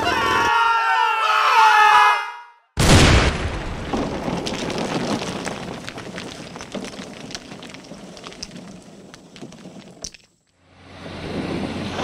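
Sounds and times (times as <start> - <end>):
wall crumbling into rubble: 2.8 - 10.3
falling fragments clattering: 3.8 - 10.4.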